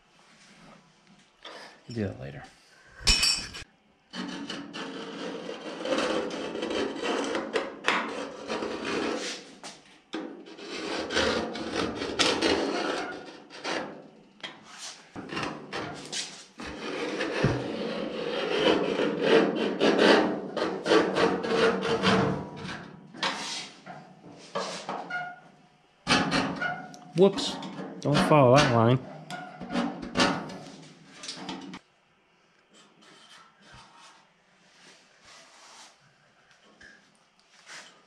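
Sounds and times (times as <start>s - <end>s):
steel scribe scratching steel: 4.2s - 9.6s, 10.5s - 14.0s, 14.6s - 23.8s.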